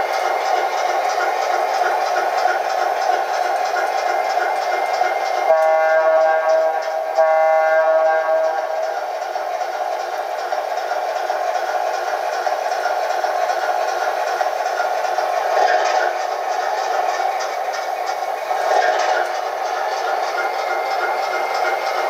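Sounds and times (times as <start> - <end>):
recorded diesel engine rumble: 0.0 - 22.0
locomotive horn blasts: 5.5 - 8.8.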